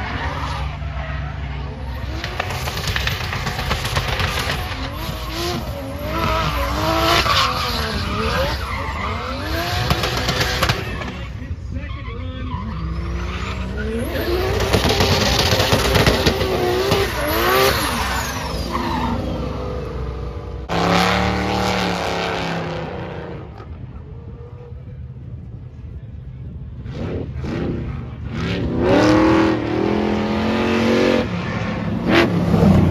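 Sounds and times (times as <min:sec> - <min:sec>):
tyres squealing and skidding: 0:00.0 - 0:23.0
car engines revving: 0:00.0 - 0:32.9.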